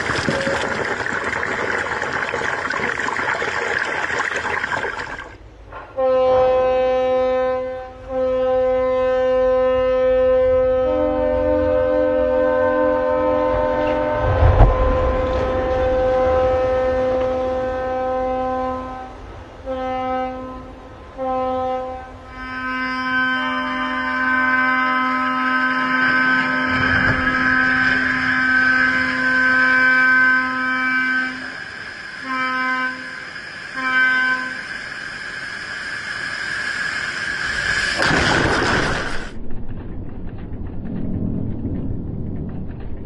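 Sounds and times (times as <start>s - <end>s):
rush of water: 0.0s - 5.4s
rushing water wave: 0.0s - 5.6s, 13.7s - 19.7s, 24.0s - 39.4s
ship's horn blasts: 5.6s - 36.9s
lower horn: 5.8s - 34.7s.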